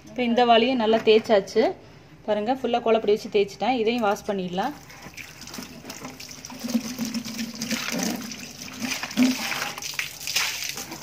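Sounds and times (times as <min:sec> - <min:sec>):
hands rubbing bucket: 0:04.8 - 0:11.0
water splashing into plastic bucket: 0:04.8 - 0:11.0
water gushing out: 0:05.1 - 0:11.0.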